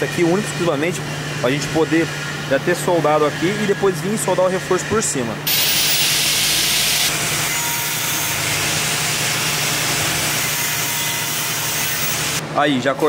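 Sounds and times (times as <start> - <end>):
angle grinder cutting metal: 5.5 - 12.4.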